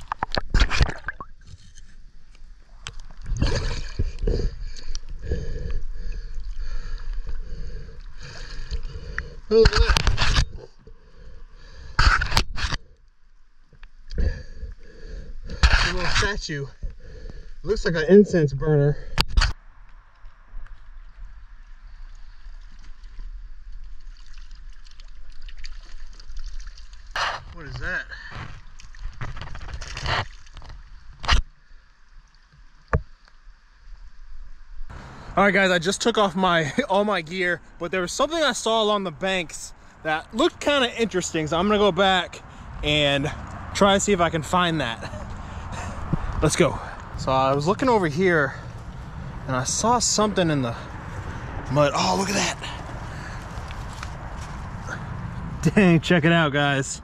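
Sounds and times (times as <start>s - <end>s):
river water gurgling and splashing: 21.2s - 27.2s.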